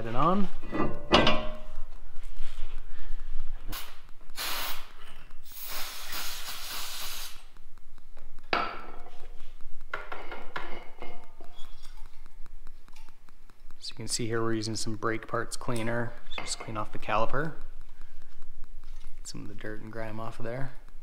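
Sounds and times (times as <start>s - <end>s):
aerosol spray hissing: 3.7s - 7.5s.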